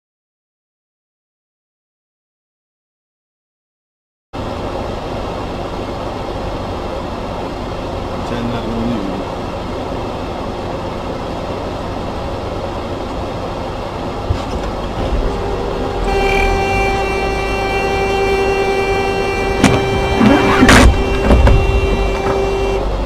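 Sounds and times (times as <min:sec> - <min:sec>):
vehicle rumble: 0:04.4 - 0:23.0
loud horn holding one tone: 0:15.3 - 0:23.0.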